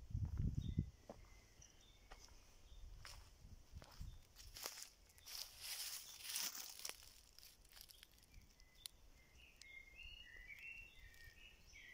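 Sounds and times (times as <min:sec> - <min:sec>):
faint bird chirps: 0:00.5 - 0:03.3, 0:03.9 - 0:07.1, 0:07.7 - 0:11.9
footsteps rustling through dry leaves: 0:03.0 - 0:08.4.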